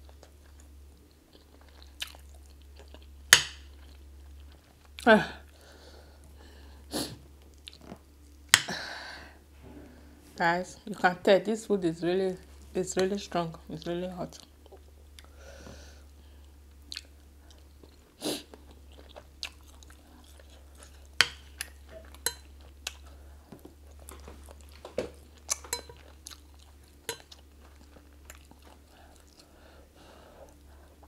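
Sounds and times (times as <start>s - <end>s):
chewing and mouth sounds: 0.0s - 5.1s, 7.4s - 8.5s, 16.8s - 29.6s
steady low hum: 0.0s - 31.0s.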